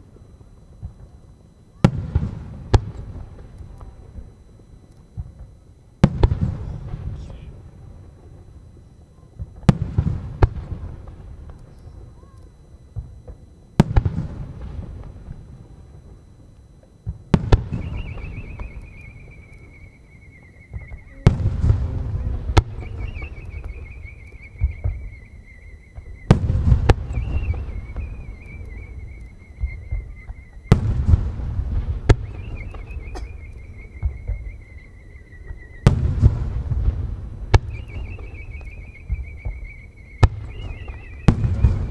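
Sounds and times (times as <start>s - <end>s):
warbling whistle falling in pitch: 17.5s - 36.7s, 37.6s - 41.9s
firework deep boom: 20.7s - 25.3s, 25.9s - 41.9s.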